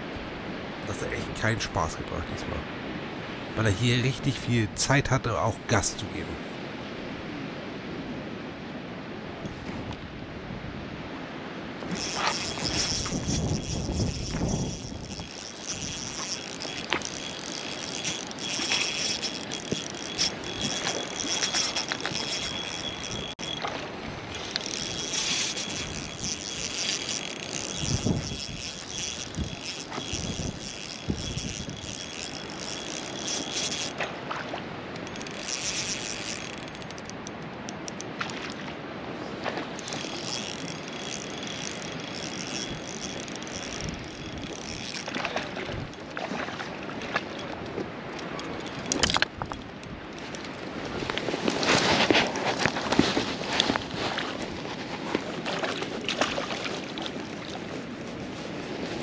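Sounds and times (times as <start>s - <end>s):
spinning reel being cranked: 11.9s - 23.7s, 24.3s - 34.0s, 35.0s - 38.1s, 39.8s - 45.2s.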